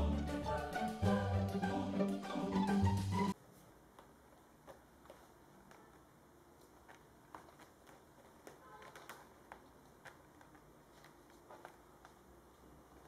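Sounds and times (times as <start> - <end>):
kitten claws scratching: 6.7 - 12.3.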